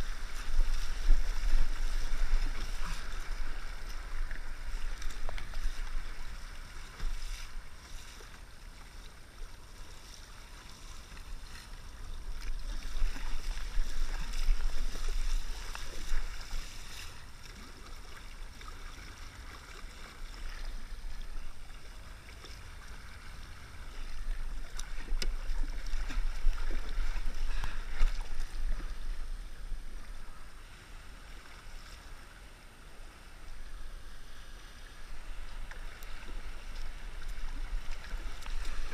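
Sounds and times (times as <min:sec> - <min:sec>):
wind rumble on microphone: 0:00.0 - 0:07.8, 0:10.9 - 0:17.3
kayak paddle strokes splashing: 0:00.0 - 0:38.9
water washing along hull: 0:00.0 - 0:38.9.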